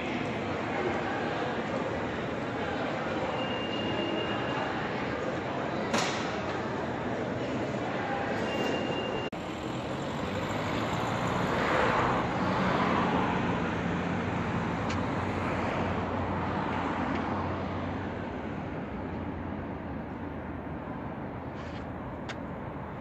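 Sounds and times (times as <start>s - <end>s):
road traffic: 0.0s - 23.0s
car passing close: 9.4s - 18.3s.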